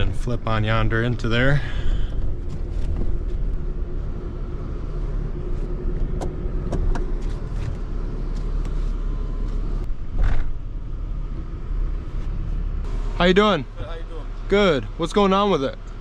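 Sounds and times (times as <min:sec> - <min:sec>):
engine and tyres rumbling: 0:00.0 - 0:16.0.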